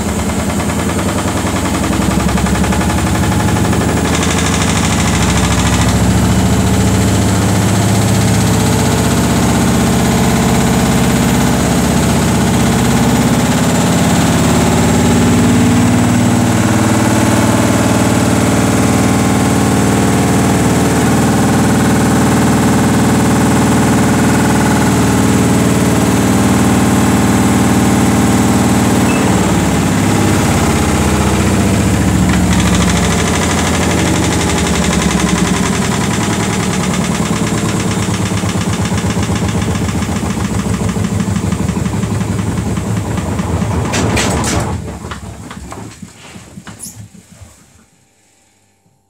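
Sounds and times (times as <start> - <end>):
washing machine spinning down: 0.0 - 48.0
knocks of washing machine drum: 29.0 - 47.4.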